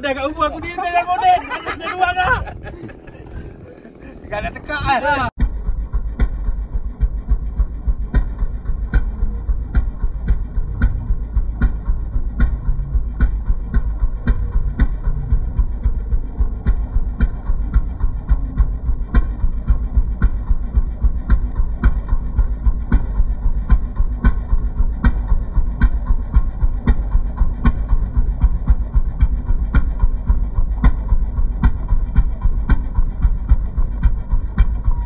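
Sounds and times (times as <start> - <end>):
model plane engine idling: 1.6 - 5.3.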